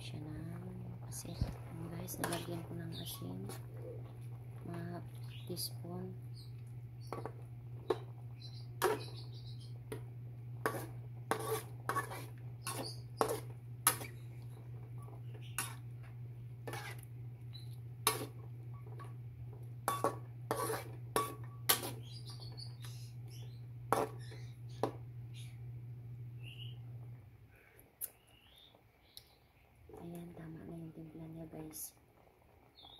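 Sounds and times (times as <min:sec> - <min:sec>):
steady low hum: 0:00.0 - 0:28.1
food simmering: 0:00.8 - 0:19.8
metal utensil scraping a pot: 0:08.8 - 0:09.1, 0:10.6 - 0:14.2, 0:15.4 - 0:15.9, 0:16.6 - 0:17.1, 0:18.0 - 0:19.1, 0:19.9 - 0:22.5.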